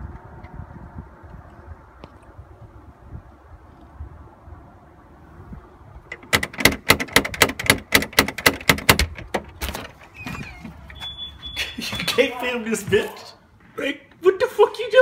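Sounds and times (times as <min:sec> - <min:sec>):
metal door knocker rapping: 0:06.1 - 0:09.9.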